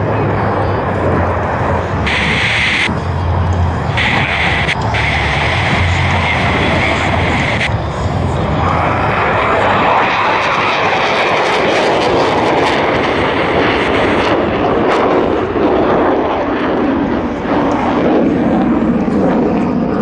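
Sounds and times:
jet roaring overhead: 0:00.0 - 0:20.0.

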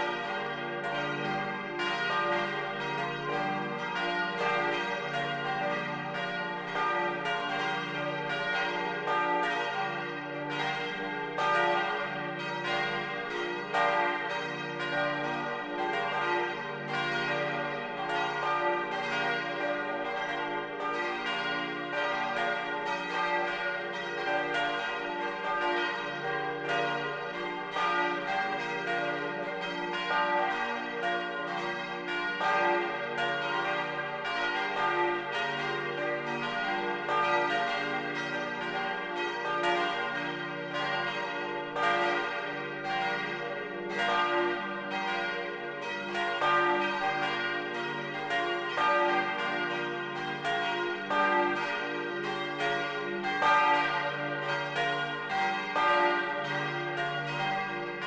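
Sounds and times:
church bells ringing: 0:00.0 - 0:58.0.

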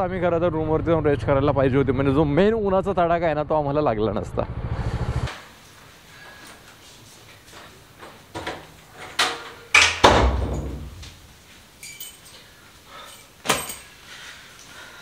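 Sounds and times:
door closing thud: 0:09.2 - 0:11.2
light jingling: 0:10.5 - 0:14.2.

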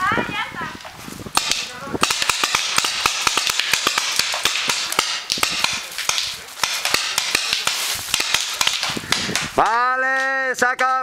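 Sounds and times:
paintball markers firing: 0:01.4 - 0:09.8.

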